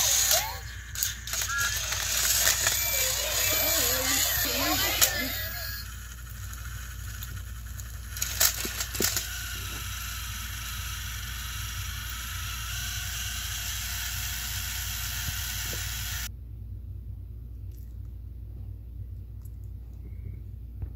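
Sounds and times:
toy train clattering off track: 0.0s - 10.5s
toy train motors whirring: 0.0s - 16.3s.

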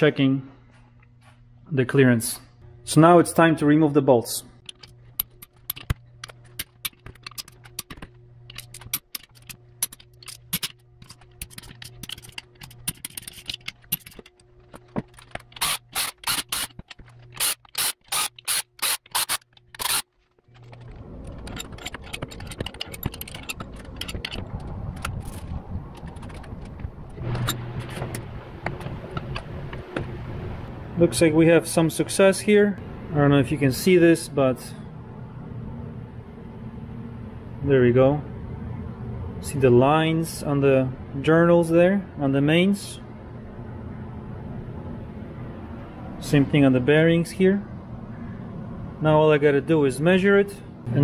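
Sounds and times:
socket ratchet clicking: 4.6s - 14.4s, 15.1s - 20.1s.

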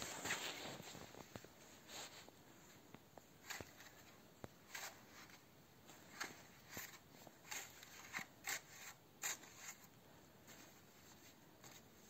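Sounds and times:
footsteps crunching in snow: 0.0s - 1.3s.

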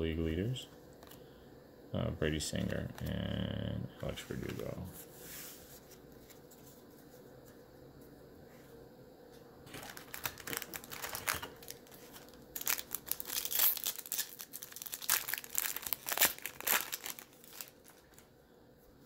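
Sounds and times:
wrapper being torn open: 9.7s - 18.2s
plastic foil wrapper crinkling: 9.7s - 18.3s.

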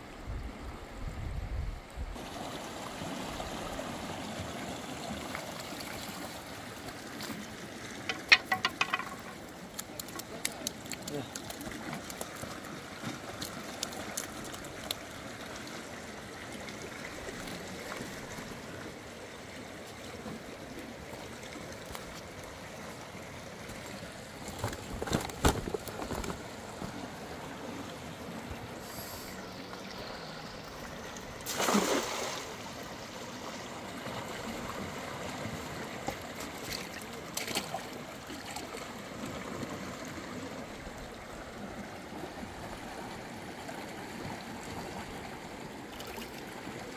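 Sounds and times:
knocks: 8.1s - 9.4s.

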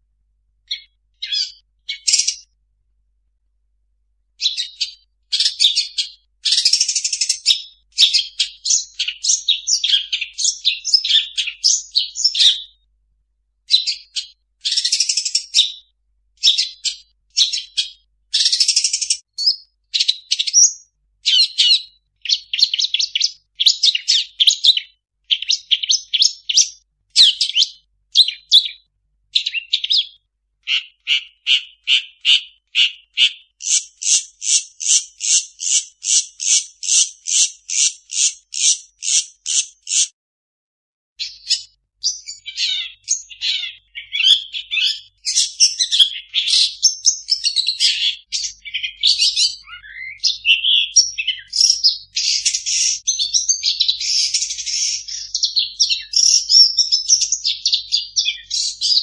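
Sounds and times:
shrike singing chattering song: 29.4s - 40.1s.

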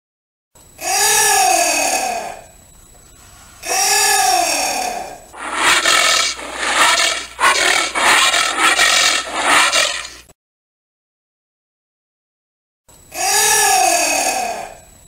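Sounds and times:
giant anteater calling: 5.4s - 10.2s.

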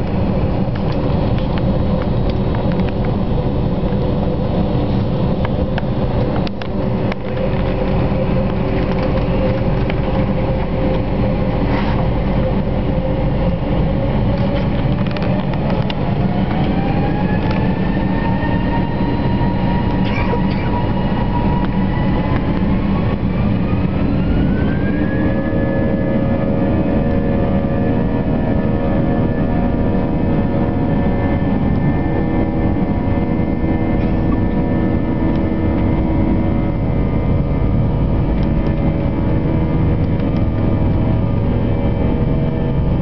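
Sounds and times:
jet engine whine rising in pitch: 0.0s - 43.0s
jet engines rumbling in cabin: 0.0s - 43.0s.

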